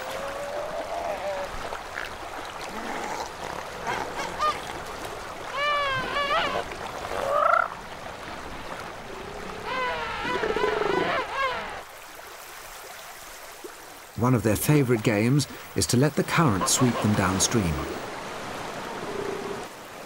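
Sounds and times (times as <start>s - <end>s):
splashing river water: 0.0s - 20.0s
seal pups honking cries: 5.5s - 6.6s.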